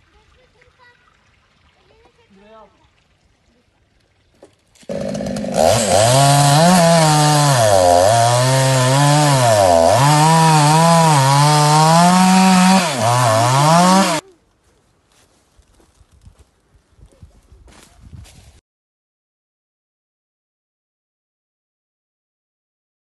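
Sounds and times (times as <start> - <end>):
chainsaw cutting through logs: 4.8 - 14.2.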